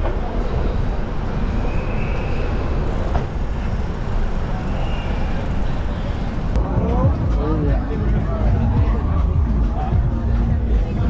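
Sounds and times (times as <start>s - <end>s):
city street traffic: 0.0s - 11.0s
faint high squeal: 1.4s - 3.0s, 4.5s - 6.2s.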